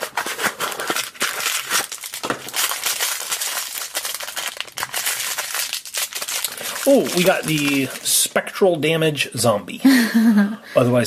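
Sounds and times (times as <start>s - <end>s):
plastic packaging tearing and crackling: 0.0s - 8.6s.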